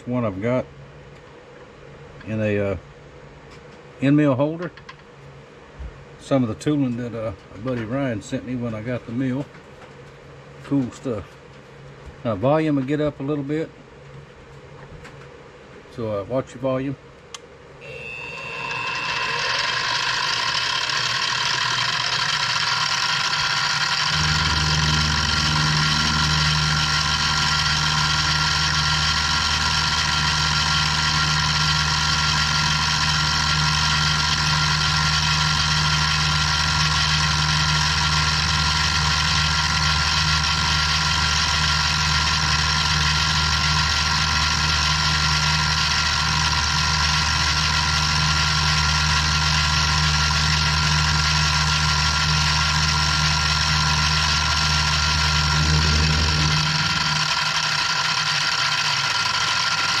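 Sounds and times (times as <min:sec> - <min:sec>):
end mill cutting wood: 0:17.8 - 1:00.0
milling machine motor whine: 0:17.8 - 1:00.0.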